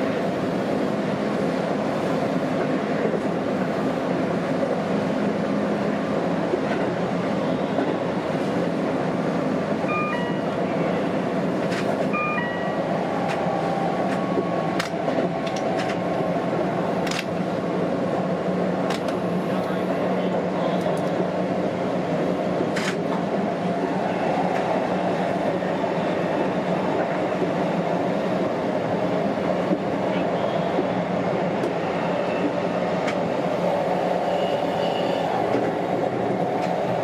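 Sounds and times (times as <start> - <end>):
train wheels rumbling on rails: 0.0 - 37.0
short electronic beeps: 9.9 - 10.5, 12.1 - 12.8.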